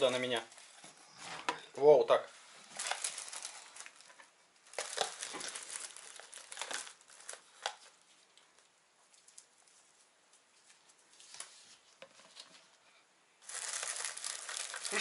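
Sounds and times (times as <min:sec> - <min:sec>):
plastic bag crinkling: 0:02.6 - 0:08.0, 0:13.4 - 0:15.0.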